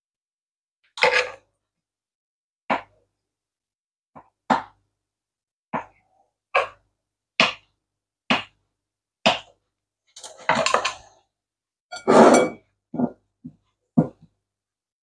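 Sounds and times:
scraping and clatter into bowl: 12.0 - 13.2.

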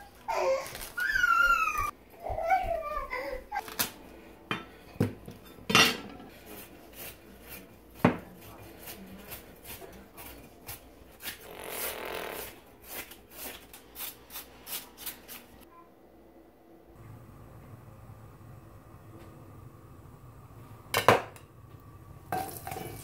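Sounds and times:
knife shredding cabbage on board: 6.3 - 15.6.

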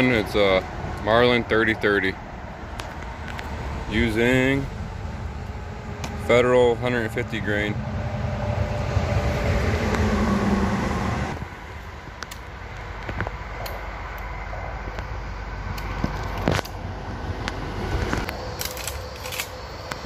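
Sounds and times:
outdoor background: 0.0 - 20.0
rifle clicks and knocks: 18.2 - 19.6.

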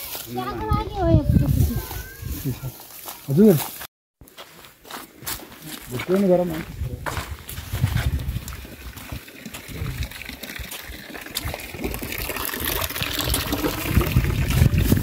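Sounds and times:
water trickling and pouring: 7.9 - 15.0.

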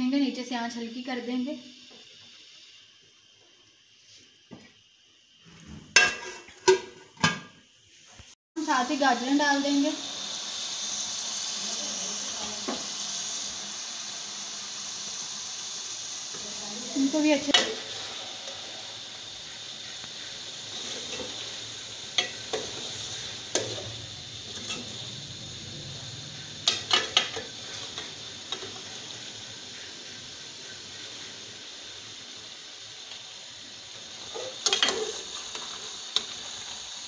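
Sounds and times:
low sizzle: 0.0 - 37.0
metal spatula scraping pot: 5.5 - 7.2, 34.2 - 36.4.

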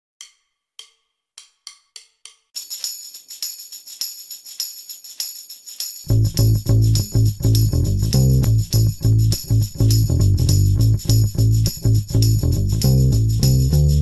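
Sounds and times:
jingling percussion beat: 0.2 - 14.0
loud low bass: 6.1 - 14.0.

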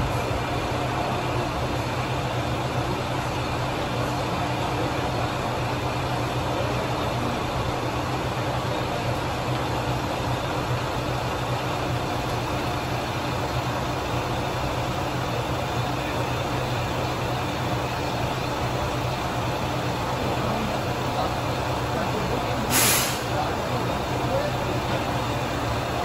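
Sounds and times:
diesel railcar engine idling: 0.0 - 26.0.

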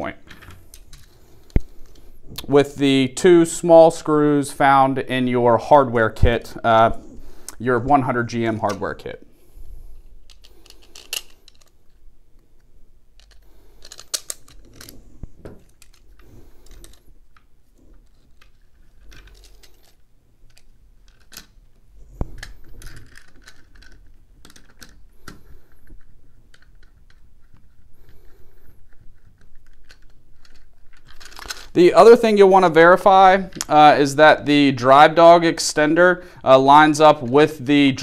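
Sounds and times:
plastic parts clicking: 0.2 - 2.5, 10.0 - 31.8, 33.4 - 33.8.

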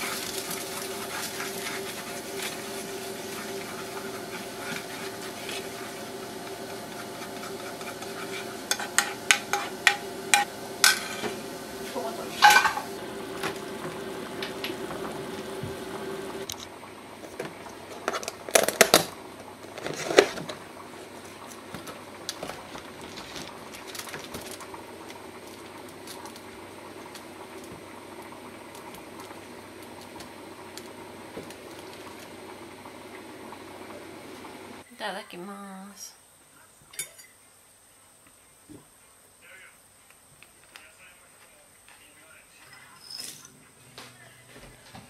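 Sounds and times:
steady hum: 0.0 - 34.8
spoon scraping a frying pan: 6.6 - 11.4.

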